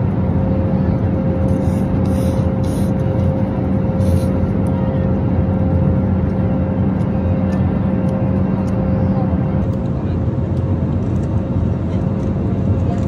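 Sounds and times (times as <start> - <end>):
airliner cabin drone: 0.0 - 13.0
constant low hum: 0.0 - 13.0.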